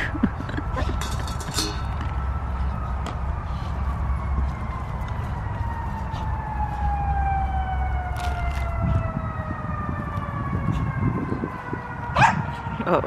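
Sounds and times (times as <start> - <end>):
distant siren: 0.4 - 13.0
wind on microphone: 7.6 - 13.0.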